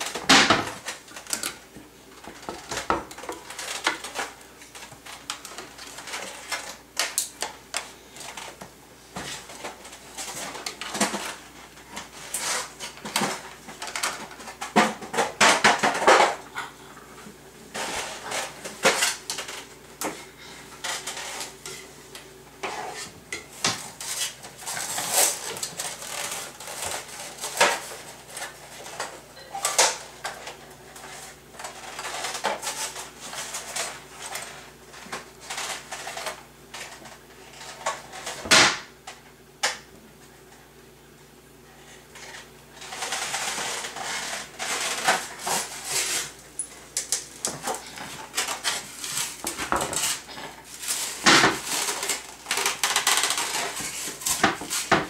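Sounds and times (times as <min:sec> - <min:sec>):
kitchen utensils clattering: 0:22.6 - 0:37.0.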